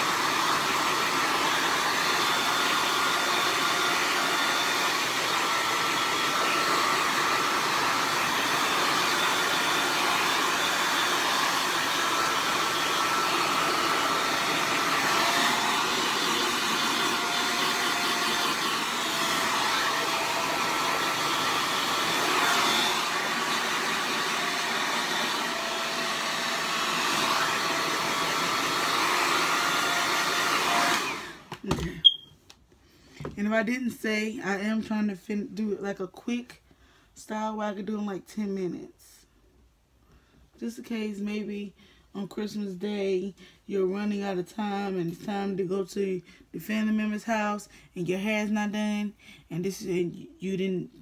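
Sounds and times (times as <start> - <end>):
blow dryer running: 0.0 - 32.2.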